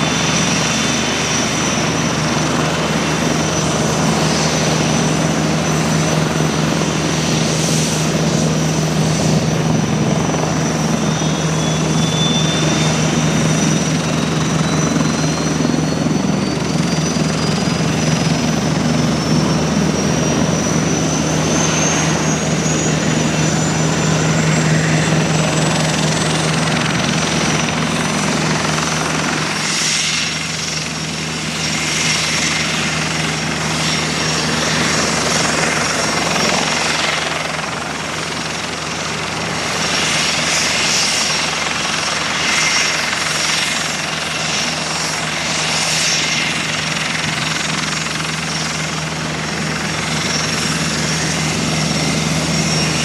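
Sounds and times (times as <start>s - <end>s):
whine climbing in pitch: 0.0s - 38.5s
constant high whine: 0.0s - 53.0s
helicopter turbine and rotor noise: 0.0s - 53.0s.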